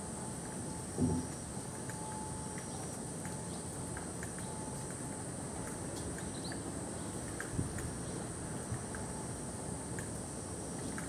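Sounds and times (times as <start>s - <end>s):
light ticks of rain: 0.0s - 11.0s
low thump: 1.0s - 1.3s.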